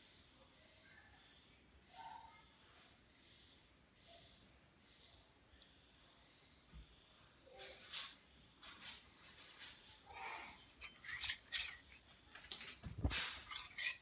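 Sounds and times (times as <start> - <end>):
shear blades scraping: 10.6 - 14.0.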